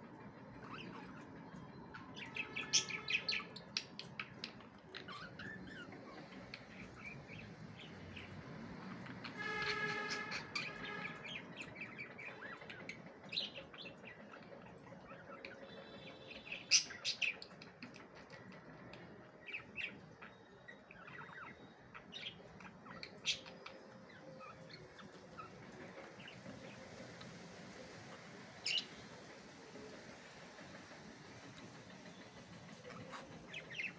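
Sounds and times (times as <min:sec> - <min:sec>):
budgerigars chirping: 0:00.6 - 0:01.3, 0:01.9 - 0:18.3, 0:19.5 - 0:27.4, 0:28.1 - 0:29.1, 0:32.8 - 0:33.9.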